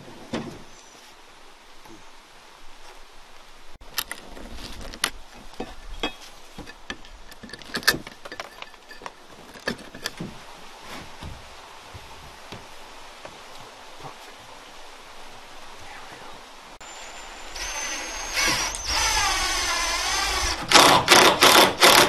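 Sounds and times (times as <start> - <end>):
boards and tools clattering: 4.1 - 10.4.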